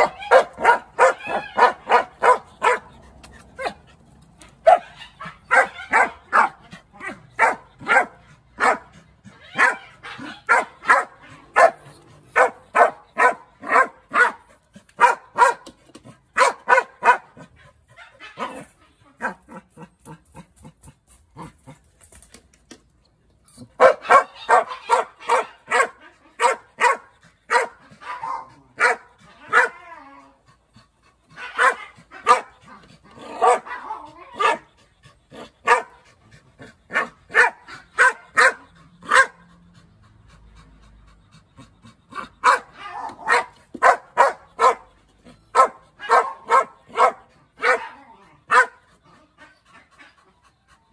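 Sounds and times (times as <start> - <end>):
dog barking: 0.0 - 2.9, 4.6 - 8.9, 9.5 - 14.4, 15.0 - 15.7, 16.4 - 19.4, 23.8 - 29.8, 31.4 - 32.6, 33.2 - 34.7, 35.6 - 36.0, 36.9 - 39.4, 42.4 - 44.9, 45.5 - 48.8.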